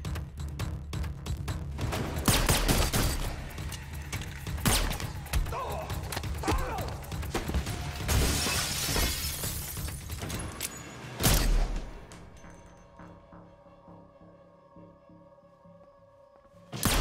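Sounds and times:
glass shattering: 8.1 - 10.9.

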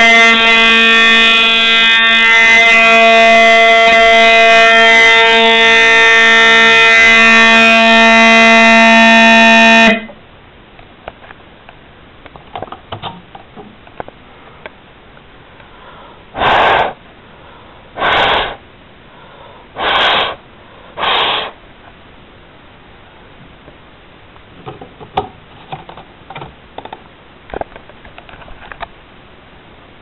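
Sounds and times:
fire alarm horn buzzing: 0.0 - 10.2
short loud alarm bursts: 0.0 - 10.2.

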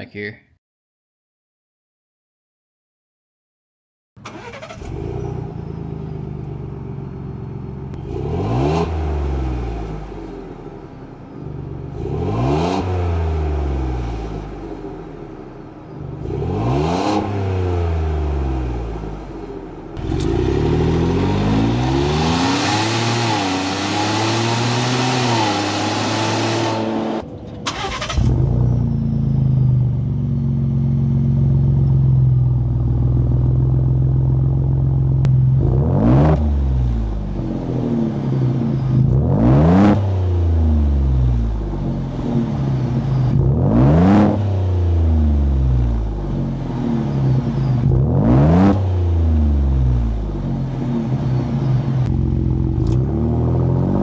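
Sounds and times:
car engine starting and idling: 4.2 - 39.6, 40.4 - 54.0
car engine revving: 4.2 - 54.0.

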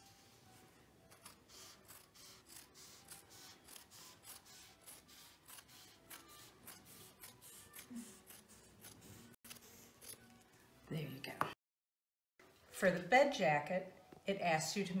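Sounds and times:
scissors cutting fabric: 1.0 - 10.5.

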